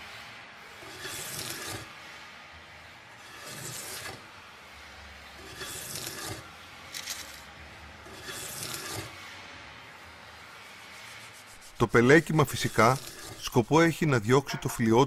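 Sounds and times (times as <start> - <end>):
hand tool shaving wood: 0.8 - 1.9, 3.3 - 4.2, 5.4 - 7.4, 8.1 - 9.1, 11.4 - 13.9.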